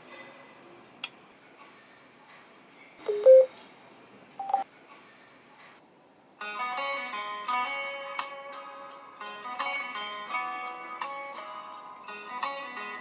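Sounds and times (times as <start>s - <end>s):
electronic prompt beeps: 3.1s - 3.5s, 4.4s - 4.6s.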